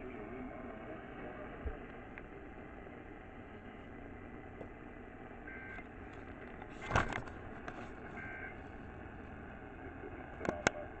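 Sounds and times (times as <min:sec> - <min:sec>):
radio hiss and static: 0:00.0 - 0:11.0.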